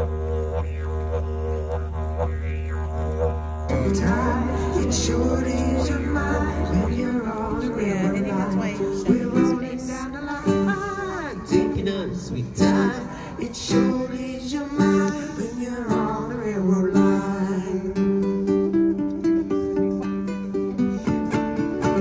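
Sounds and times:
person singing: 3.7 - 18.5
strummed acoustic guitar: 3.7 - 22.0.

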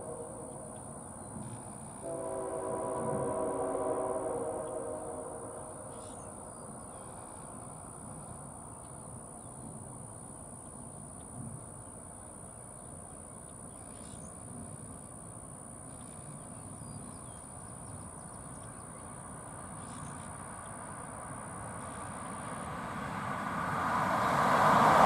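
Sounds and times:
steady high-pitched tone: 0.0 - 1.2.

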